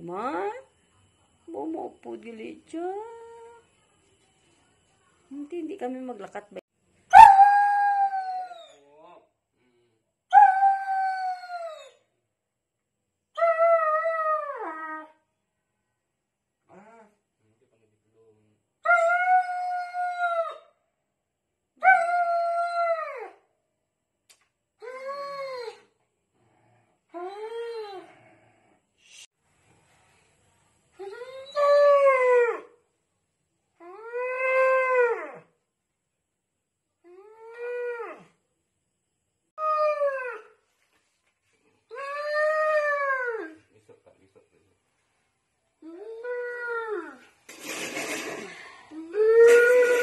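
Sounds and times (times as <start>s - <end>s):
dog howling in distress: 49.1s - 50.0s.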